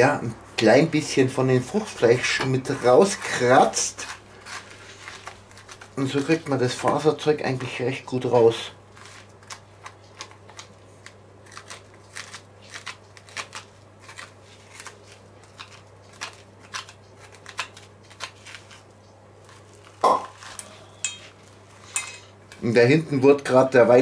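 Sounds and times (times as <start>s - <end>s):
spoon scraping squash: 1.6s - 10.3s.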